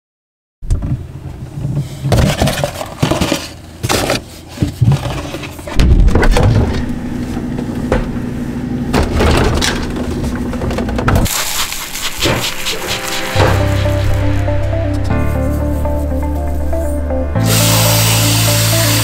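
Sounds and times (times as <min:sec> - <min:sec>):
bottles and containers clattering: 0:02.0 - 0:06.7
steady low hum: 0:05.5 - 0:19.0.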